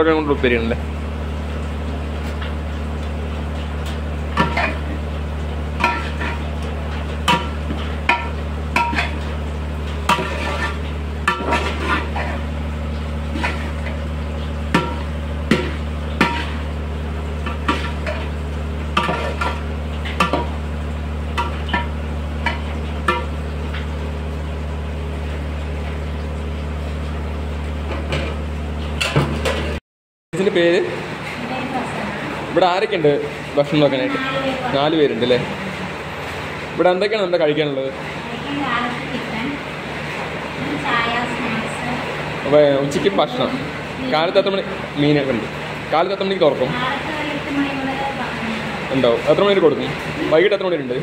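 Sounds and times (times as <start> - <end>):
steady low hum: 0.0 - 29.8, 30.4 - 51.0
metal spoon scraping a pan: 5.8 - 6.4, 10.0 - 12.4, 19.0 - 19.6.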